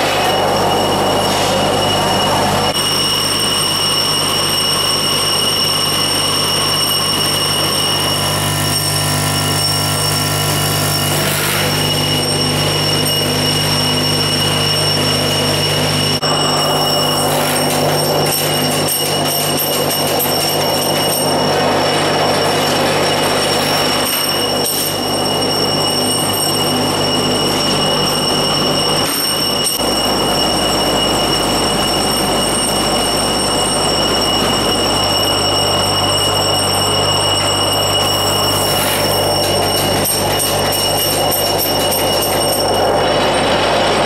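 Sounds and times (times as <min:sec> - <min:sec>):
high whine: 0:00.0 - 0:44.0
machine hum: 0:00.0 - 0:44.0
metallic clatter of tubes: 0:16.8 - 0:21.4, 0:22.8 - 0:26.8, 0:37.4 - 0:43.1.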